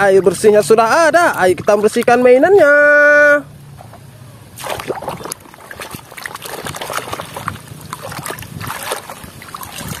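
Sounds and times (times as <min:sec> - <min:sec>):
water splashing in a basin: 0:04.5 - 0:10.0.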